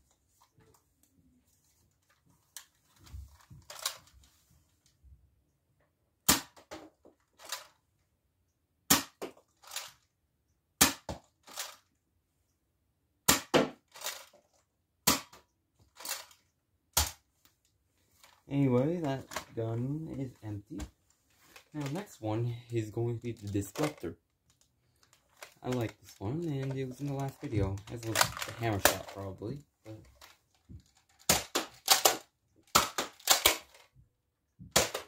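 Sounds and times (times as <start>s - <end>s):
toy dart pistol pops: 6.3s - 6.6s.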